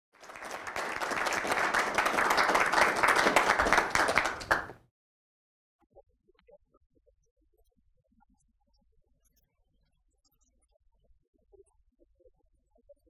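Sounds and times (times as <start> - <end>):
audience applauding: 0.2 - 4.8.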